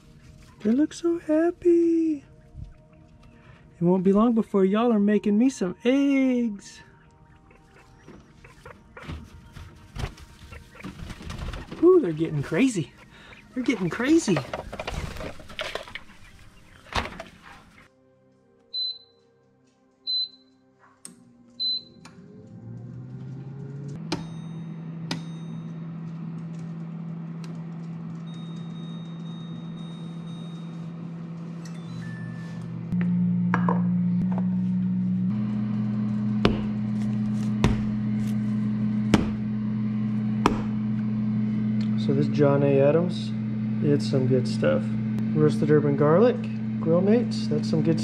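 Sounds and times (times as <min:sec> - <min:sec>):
low background music chords: 0:00.0 - 0:14.6
air fryer control panel beeps: 0:18.8 - 0:19.1, 0:20.1 - 0:20.5, 0:21.6 - 0:22.1, 0:24.2 - 0:26.0, 0:28.2 - 0:31.0, 0:31.6 - 0:32.6.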